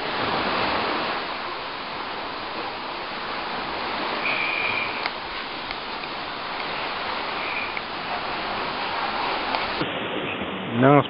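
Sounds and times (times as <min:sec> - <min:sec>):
sea water rushing along shore: 0:00.0 - 0:11.0
thin high whistle: 0:04.1 - 0:05.1, 0:07.4 - 0:07.8.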